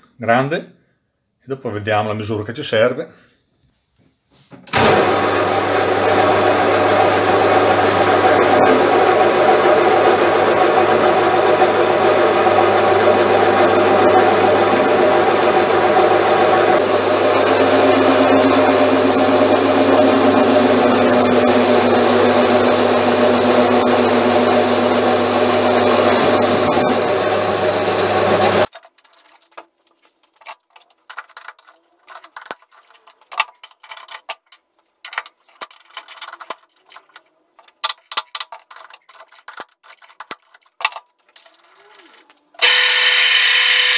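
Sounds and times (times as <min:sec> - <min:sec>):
metal lathe cutting steel: 0:04.8 - 0:28.7, 0:42.6 - 0:43.9
high whine: 0:08.0 - 0:28.7.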